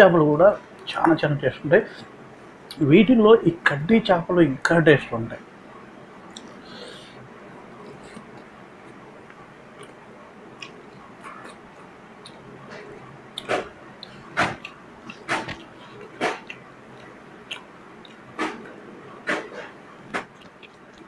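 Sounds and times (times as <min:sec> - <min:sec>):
faint chewing: 0:06.2 - 0:21.0
food mixing by hand: 0:10.6 - 0:21.0.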